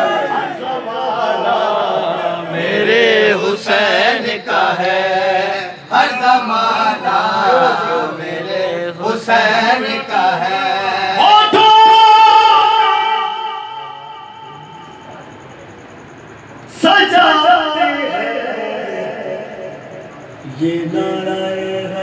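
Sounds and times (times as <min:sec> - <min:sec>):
man chanting: 0:00.6 - 0:14.2, 0:16.7 - 0:19.6.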